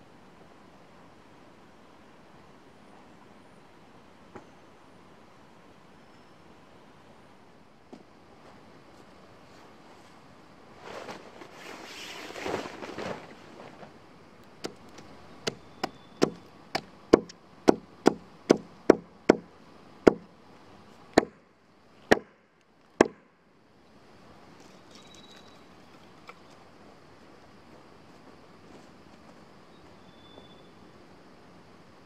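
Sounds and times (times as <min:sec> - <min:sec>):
rustle of handled gear: 0:08.4 - 0:14.0
hatchet chopping wood: 0:15.5 - 0:19.5, 0:21.2 - 0:21.4, 0:22.1 - 0:22.4, 0:23.0 - 0:23.2.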